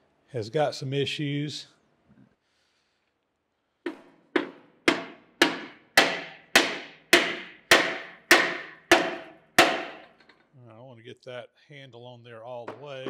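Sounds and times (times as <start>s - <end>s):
hammer striking metal: 3.9s - 10.3s.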